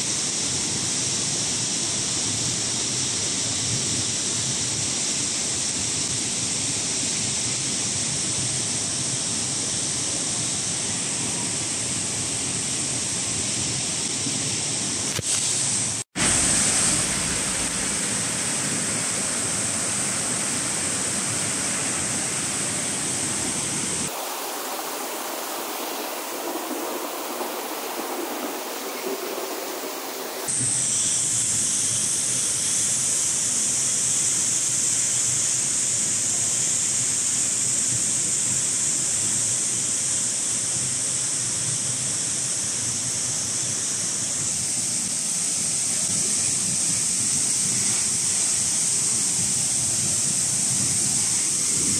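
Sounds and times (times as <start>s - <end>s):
waterfall rushing: 15.2s - 30.5s
shallow stream flowing: 16.2s - 30.5s.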